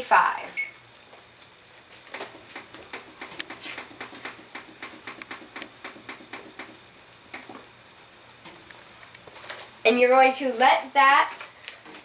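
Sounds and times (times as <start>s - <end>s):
oven touchpad key clicking: 2.5s - 6.8s.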